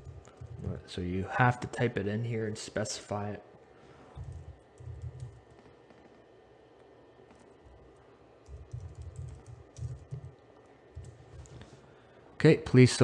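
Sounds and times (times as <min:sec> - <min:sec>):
typing on computer keyboard: 0:04.2 - 0:06.2, 0:08.4 - 0:11.5.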